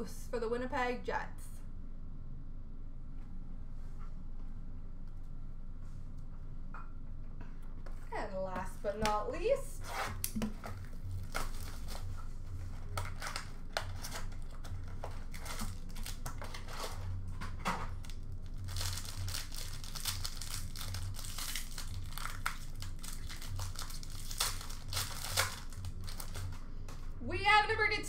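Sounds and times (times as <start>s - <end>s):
low hum: 0.0s - 28.0s
foil wrapper crinkling and tearing: 9.9s - 17.2s, 17.9s - 26.6s.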